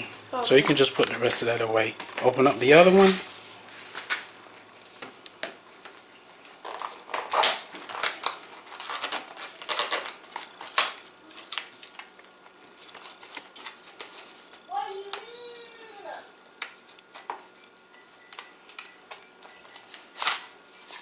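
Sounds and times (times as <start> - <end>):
plastic packaging clicks and rustles: 5.8 - 15.2.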